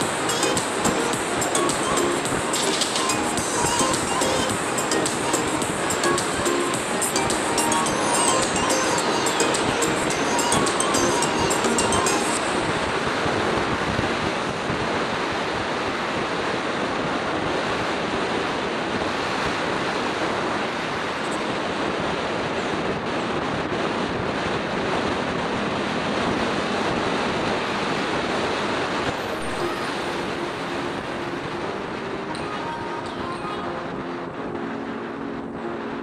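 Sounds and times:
road and traffic noise: 0.0 - 36.0
wind rushing on microphone: 12.4 - 36.0.

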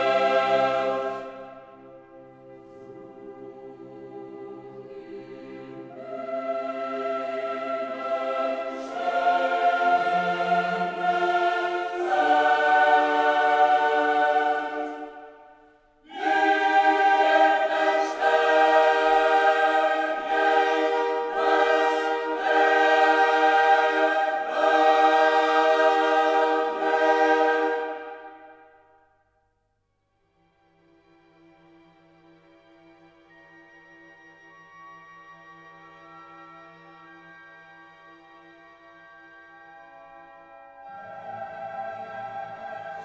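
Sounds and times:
choir singing slow chords: 0.0 - 29.4, 39.2 - 43.0.

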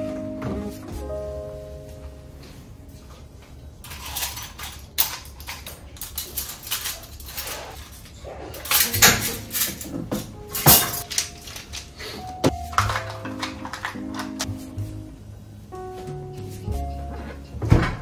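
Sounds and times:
cutlery clinking and rattling: 3.8 - 12.1.

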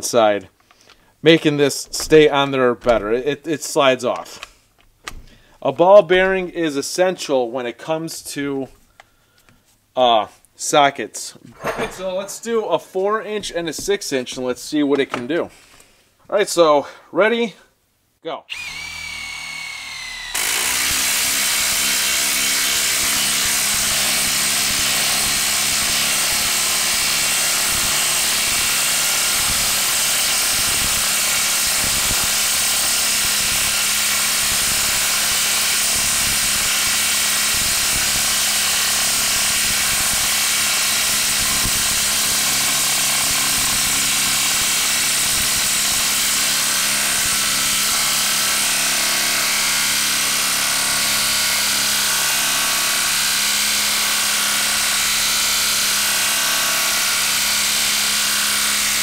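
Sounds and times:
impact driver hammering: 18.5 - 55.1.

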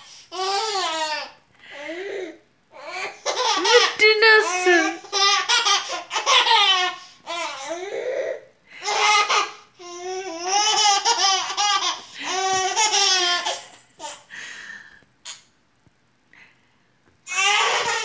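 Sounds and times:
baby laughing: 3.2 - 7.6, 8.8 - 14.3, 17.3 - 18.0.

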